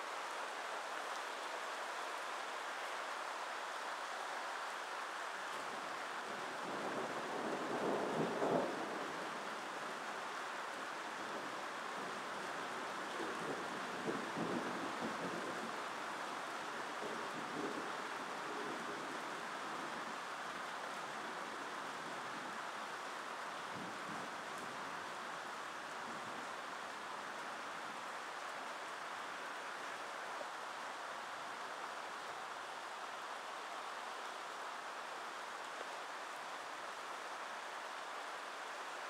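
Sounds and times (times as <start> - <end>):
rain hiss: 0.0 - 39.0.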